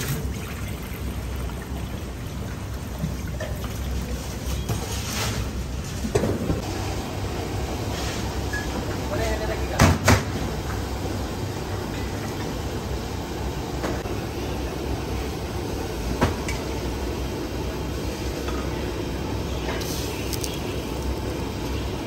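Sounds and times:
gas stove burner roaring: 6.5 - 22.0.

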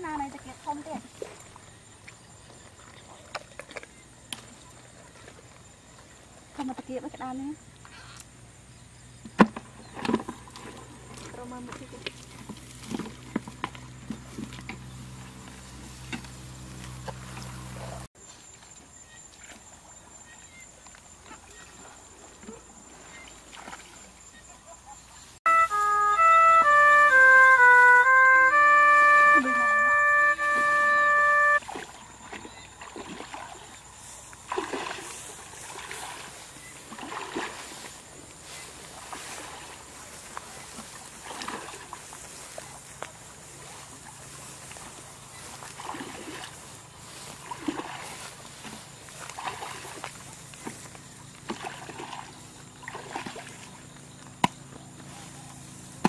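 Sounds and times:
wading through muddy water: 0.0 - 8.4, 9.0 - 25.8, 26.7 - 56.0
electronic chord music: 25.5 - 31.6.

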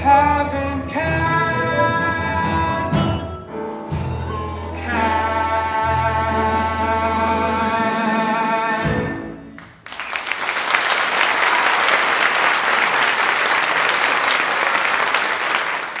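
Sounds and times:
man singing: 0.0 - 3.3, 4.5 - 9.4
musical accompaniment: 0.0 - 10.1
audience applause: 9.6 - 16.0.

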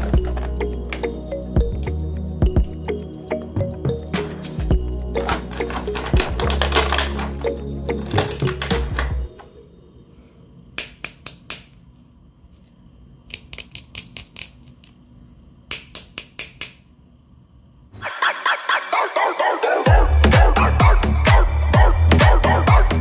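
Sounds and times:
background music: 0.0 - 10.1, 18.0 - 23.0
plastic toys clicking: 5.2 - 9.1, 13.3 - 15.0.

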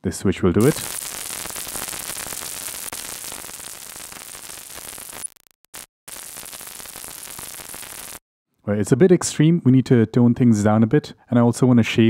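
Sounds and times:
harsh hissing synth noise: 0.6 - 8.2.

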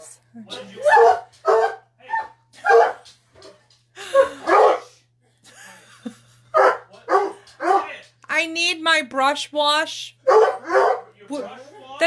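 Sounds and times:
dog barking: 0.8 - 3.0, 4.4 - 5.0, 6.5 - 8.0, 10.2 - 11.2.

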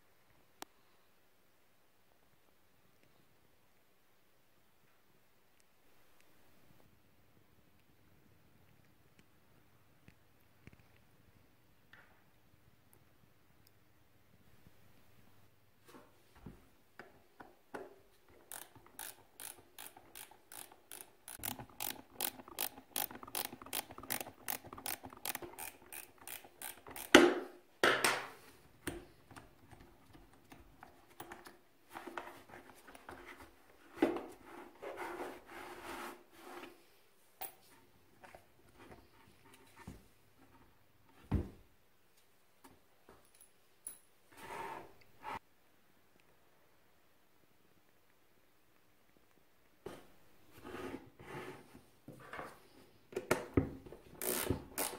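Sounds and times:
ratchet wrench clicking: 18.5 - 27.2, 54.2 - 54.9.

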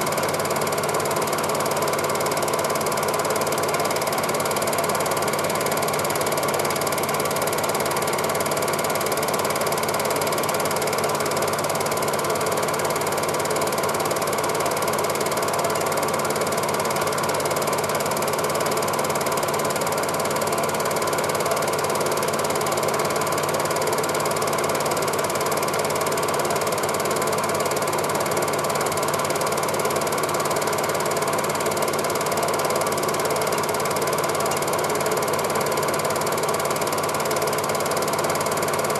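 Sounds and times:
film projector running: 0.0 - 38.9.

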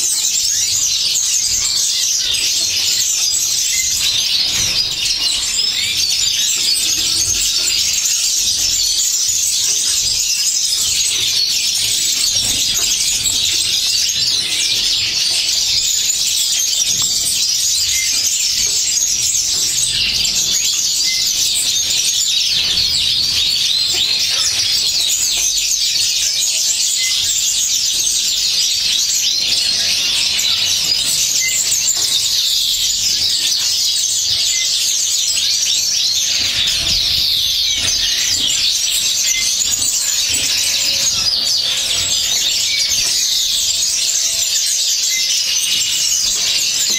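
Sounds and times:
small birds chirping: 0.0 - 46.9.

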